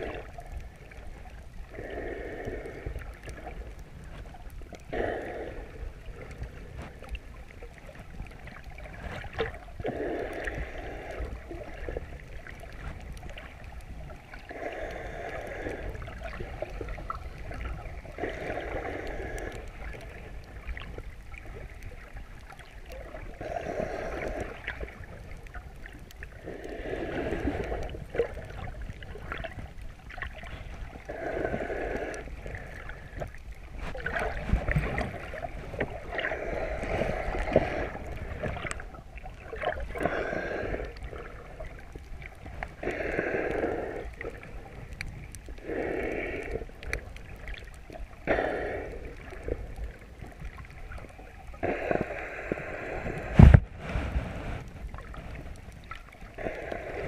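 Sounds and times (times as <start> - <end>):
muffled underwater water wash: 0.0 - 57.0
swimmer breathing: 1.6 - 4.3, 14.4 - 20.4, 30.3 - 41.7, 42.8 - 44.9, 45.6 - 47.5, 48.2 - 49.8, 51.5 - 57.0.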